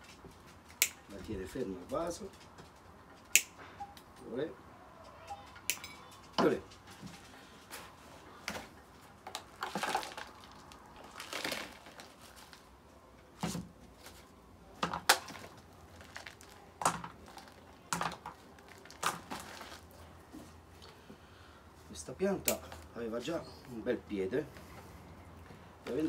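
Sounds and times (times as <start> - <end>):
wire scraping and crinkling: 5.0 - 21.1.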